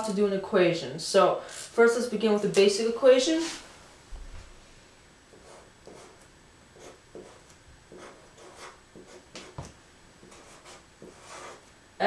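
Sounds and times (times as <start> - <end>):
marker writing on whiteboard: 5.3 - 6.2, 6.8 - 11.7.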